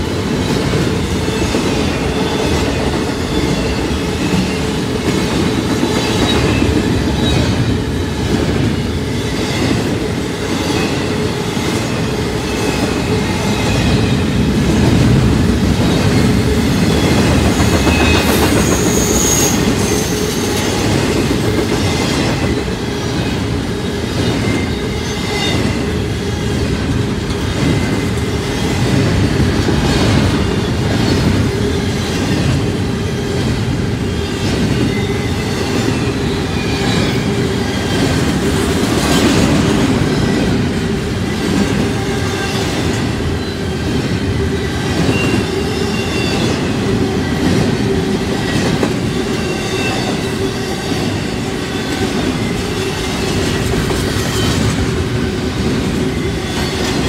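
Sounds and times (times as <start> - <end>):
freight train rumbling past: 0.0 - 57.0
wheel squeal: 16.2 - 20.9.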